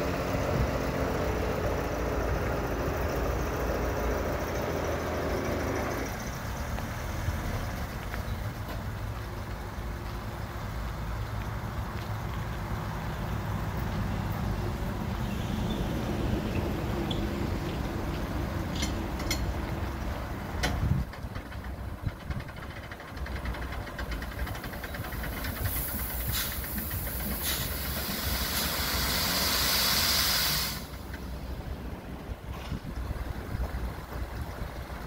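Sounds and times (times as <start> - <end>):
low engine hum: 0.0 - 35.0
crank gear ticking: 18.2 - 28.1
load sliding with hiss: 25.2 - 31.0.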